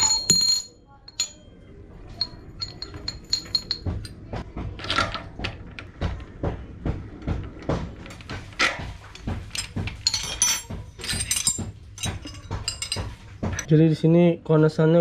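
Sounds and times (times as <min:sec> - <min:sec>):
wrench clinking on metal hub: 0:00.0 - 0:01.5, 0:02.2 - 0:04.2, 0:09.5 - 0:13.7.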